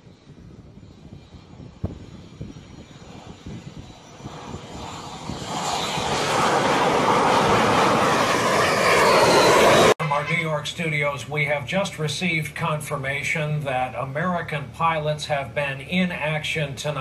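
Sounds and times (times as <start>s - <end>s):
jet engine rushing: 0.0s - 16.2s.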